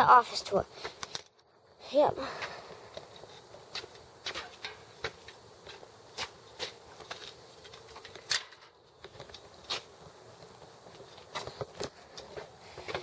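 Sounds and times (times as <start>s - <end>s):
footsteps on concrete: 2.4s - 8.0s.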